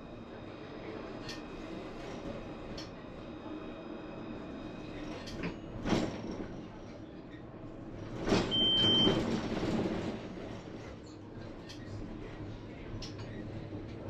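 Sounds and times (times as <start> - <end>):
tram rumbling with high whine: 0.0 - 14.0
tram clunk: 7.9 - 11.0.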